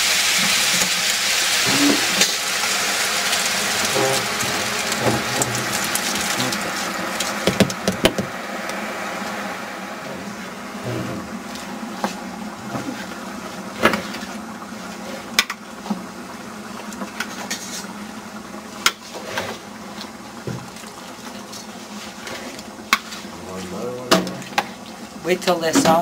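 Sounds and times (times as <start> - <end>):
steady background hum: 0.0 - 26.0.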